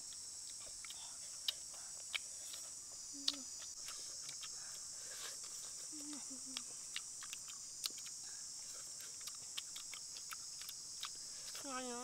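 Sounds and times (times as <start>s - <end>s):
chewing and lip-smacking clicks: 0.0s - 4.8s, 5.4s - 8.2s, 8.8s - 11.6s
insect chorus: 0.0s - 12.0s.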